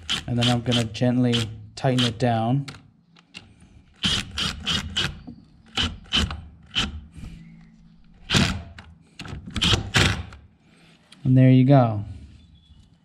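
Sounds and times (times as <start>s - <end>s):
hand ratchet clicking: 0.0s - 2.2s, 4.0s - 7.0s.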